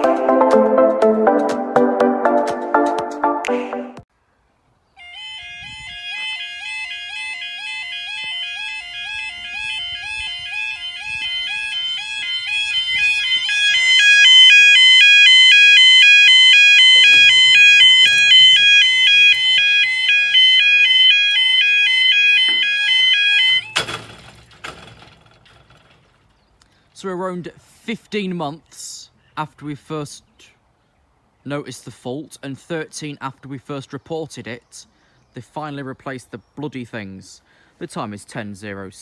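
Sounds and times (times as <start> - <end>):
level crossing alarm warbling: 5.1 - 25.0.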